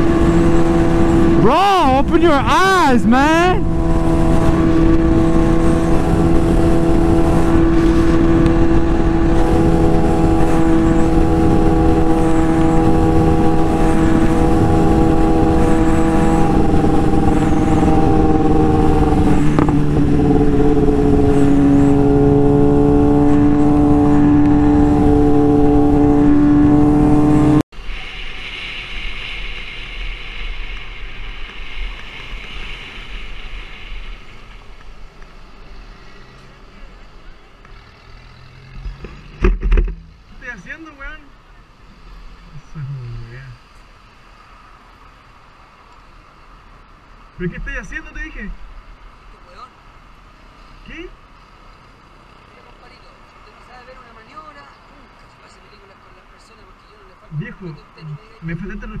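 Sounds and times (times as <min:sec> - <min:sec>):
motorcycle engine at high revs: 0:00.0 - 0:02.1, 0:03.6 - 0:27.6, 0:35.6 - 0:40.4
wind rush: 0:00.0 - 0:34.8
street traffic noise: 0:00.0 - 0:59.0.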